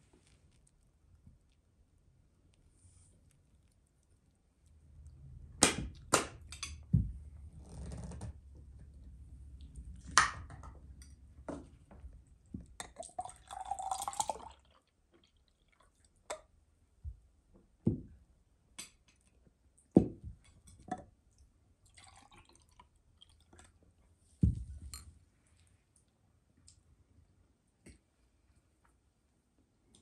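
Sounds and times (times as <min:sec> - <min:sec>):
drink pouring into a glass: 0:12.8 - 0:14.8, 0:21.8 - 0:23.5.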